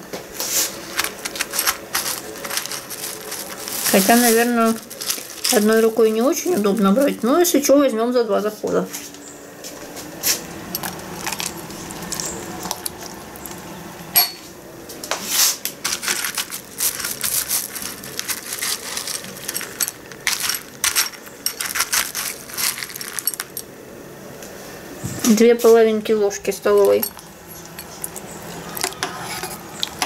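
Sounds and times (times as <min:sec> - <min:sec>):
spoon scraping plastic tub: 0:00.4 - 0:07.1, 0:15.2 - 0:23.4, 0:26.7 - 0:30.0
frozen pieces clinking: 0:00.7 - 0:07.8, 0:10.7 - 0:13.6, 0:15.8 - 0:23.7, 0:26.6 - 0:30.0.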